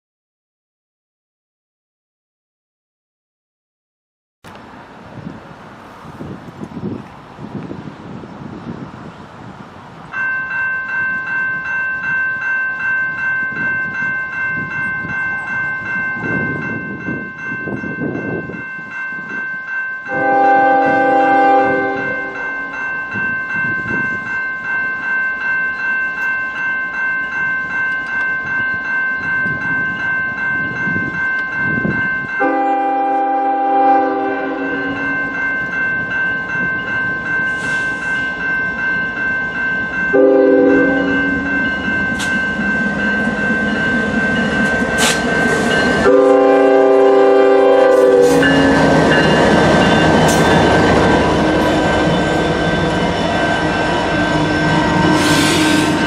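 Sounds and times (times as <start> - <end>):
low rumble of train: 4.4 - 56.0
railway crossing bell ringing: 10.0 - 56.0
locomotive air horn blasts: 20.1 - 22.5, 32.4 - 35.1, 40.2 - 41.5, 46.0 - 49.4, 53.6 - 56.0.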